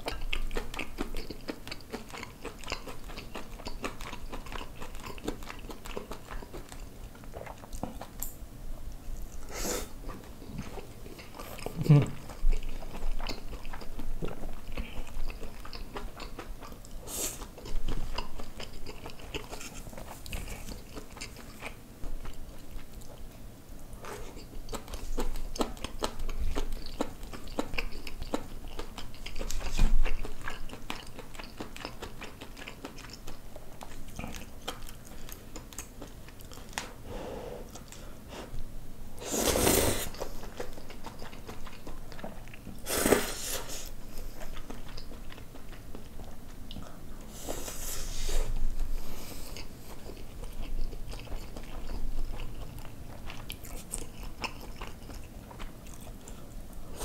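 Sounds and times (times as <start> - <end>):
person chewing: 0.0 - 8.3, 8.9 - 38.5, 39.2 - 57.0.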